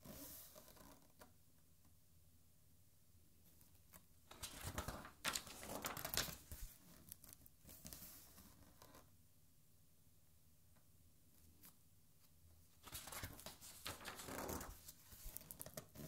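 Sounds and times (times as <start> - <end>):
paper page rustling: 4.3 - 8.3, 12.8 - 16.0.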